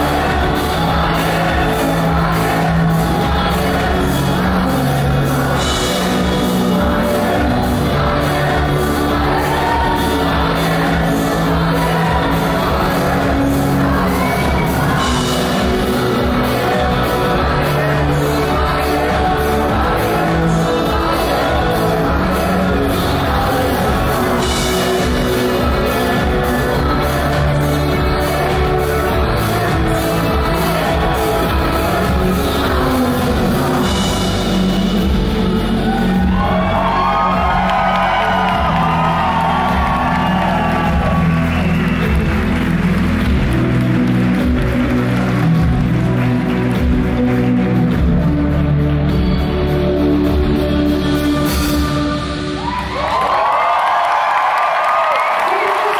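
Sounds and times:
woman singing: 0.0s - 41.4s
bass: 0.0s - 55.9s
guitar: 0.0s - 55.9s
drum beat: 36.1s - 43.8s.

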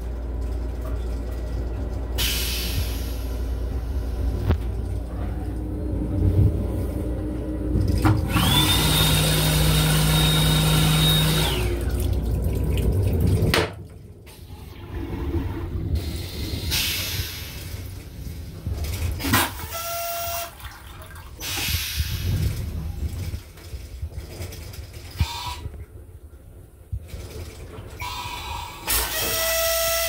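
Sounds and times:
train rumble: 0.0s - 8.7s, 11.6s - 19.5s, 21.2s - 28.9s
hand dryer whining: 8.1s - 12.0s, 28.0s - 30.0s.

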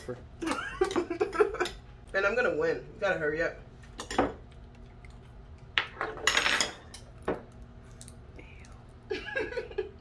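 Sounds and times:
spoons clinking on glass bowls: 5.8s - 7.2s.

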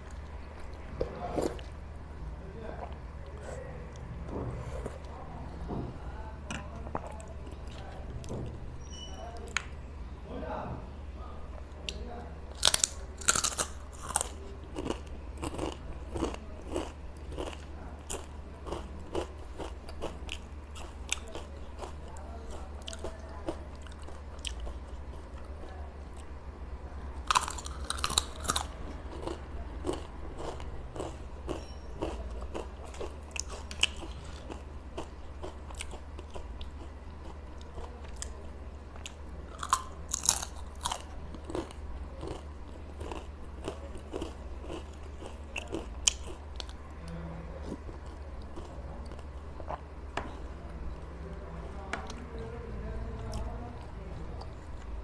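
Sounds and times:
low steady hum: 0.0s - 55.0s
crunchy chewing: 11.8s - 26.4s, 27.2s - 52.4s
crunching bites into chips: 12.5s - 22.0s, 27.3s - 36.8s, 39.5s - 46.8s.

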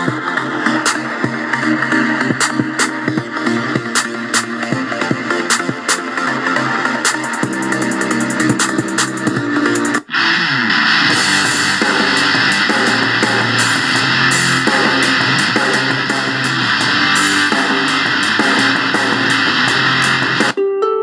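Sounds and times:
rock music with guitar and drums: 7.0s - 20.6s
plucked notes: 20.1s - 21.0s.

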